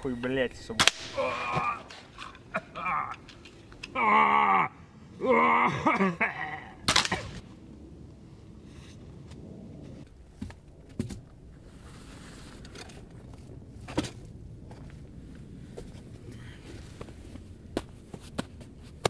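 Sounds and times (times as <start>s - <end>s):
sharp crack: 0.7s - 4.0s, 6.8s - 7.5s
man groaning in pain: 1.1s - 3.3s, 3.9s - 6.8s.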